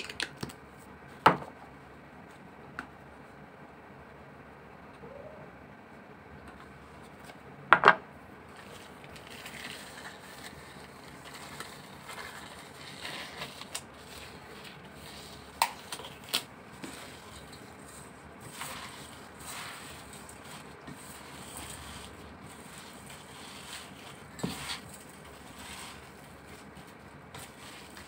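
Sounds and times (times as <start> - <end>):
plastic glove crinkling: 8.5 - 28.0.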